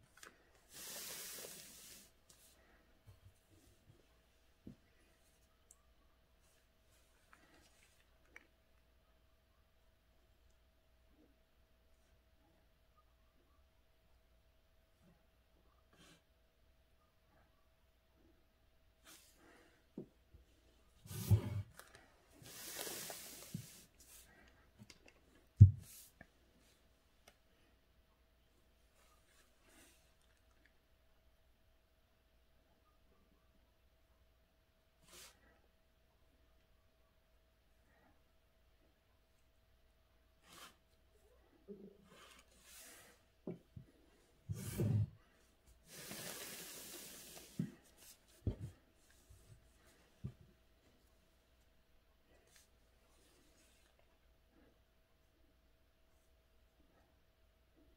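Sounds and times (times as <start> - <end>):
paper sliding rustle: 21.1 - 24.2.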